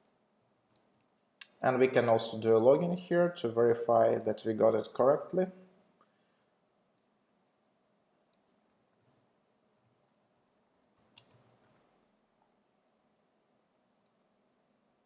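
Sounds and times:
keyboard keystrokes: 9.8 - 11.9.

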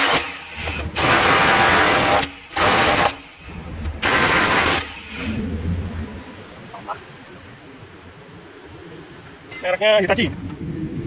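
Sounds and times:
power tool cutting concrete: 0.0 - 3.3, 4.0 - 5.3
harsh mechanical rattle: 0.0 - 5.4.

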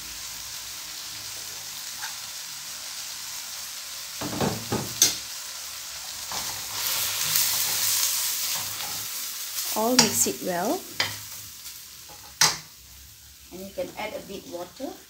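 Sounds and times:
spices sizzling in hot oil: 0.0 - 15.0
spoon scraping and knocking pan: 4.2 - 5.3, 6.3 - 9.1, 9.9 - 10.3, 10.9 - 11.3, 12.0 - 12.7.

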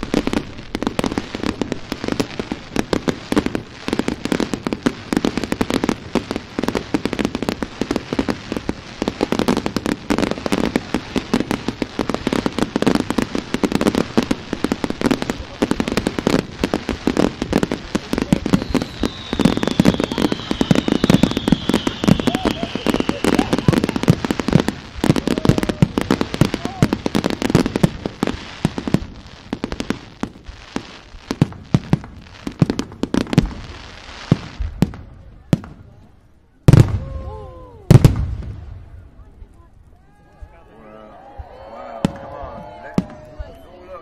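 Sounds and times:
fireworks bangs and crackling: 0.0 - 44.0
high falling whistle: 18.6 - 23.8.

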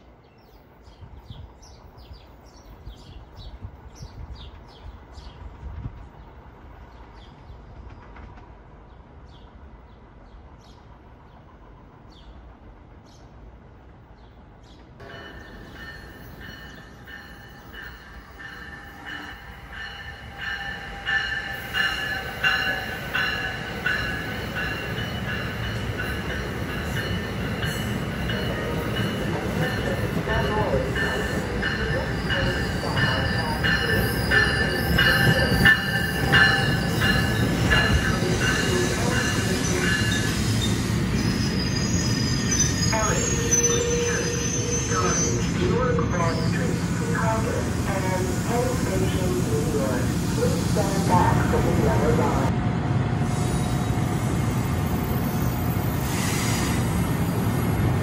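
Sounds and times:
distant train rumble: 0.0 - 58.0
birds chirping: 14.1 - 49.7
train wheels and brakes squealing: 15.0 - 47.3, 53.2 - 57.6.

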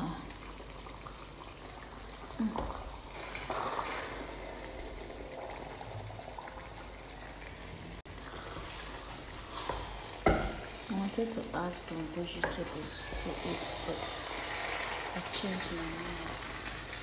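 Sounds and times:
spoon stirring in a pan: 11.9 - 15.7.

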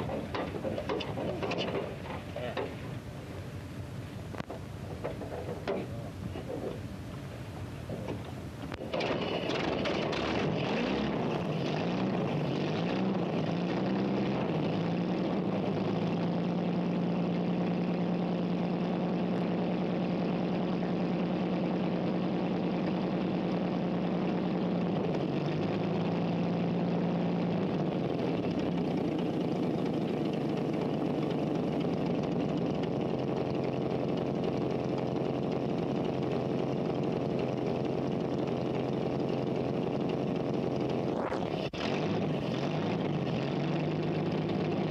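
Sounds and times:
helicopter engine running: 0.0 - 16.1, 27.6 - 44.9.

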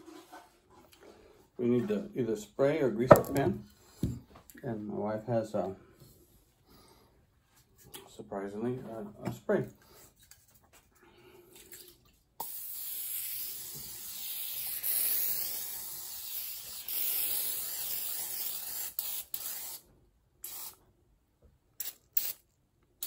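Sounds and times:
aerosol spray hissing: 12.4 - 19.8, 20.4 - 20.8.

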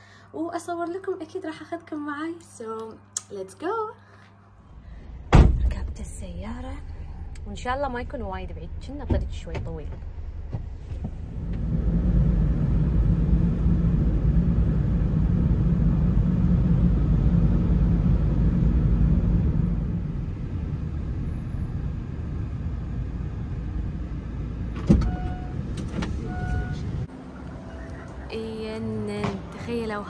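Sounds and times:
car road rumble inside cabin: 5.4 - 27.1.

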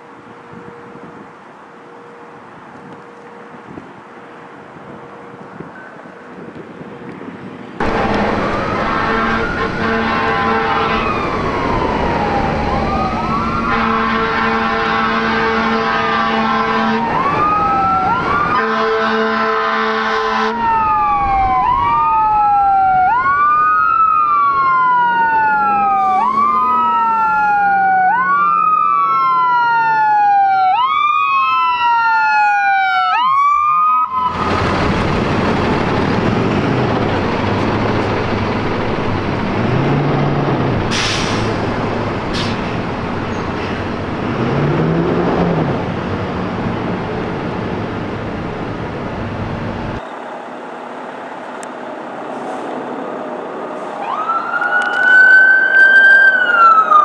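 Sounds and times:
vehicle engine and tyre noise: 0.0 - 29.8, 34.1 - 57.0
electronic siren wailing: 7.8 - 34.6, 54.0 - 57.0
vehicle horn blasts: 8.8 - 11.1, 13.7 - 17.0, 18.6 - 20.6.

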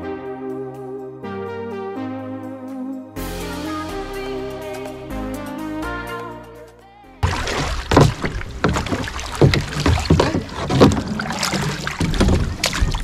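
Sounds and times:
knocks: 7.2 - 13.0
paddles splashing in water: 7.2 - 13.0.

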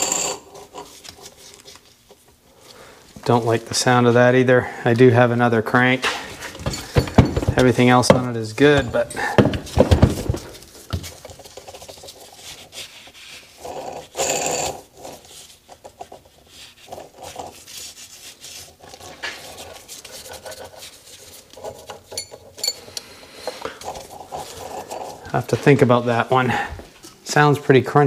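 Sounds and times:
bearings rasping as crankshaft spins: 13.6 - 15.3.

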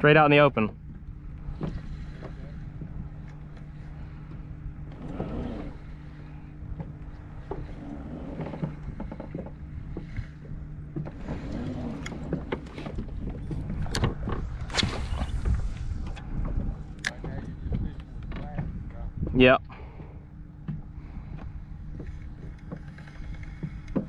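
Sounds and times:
steady low hum: 0.0 - 24.0
water lapping against kayak hull: 0.0 - 24.0
knocks and clicks of fishing gear: 0.6 - 5.9, 6.7 - 24.0.

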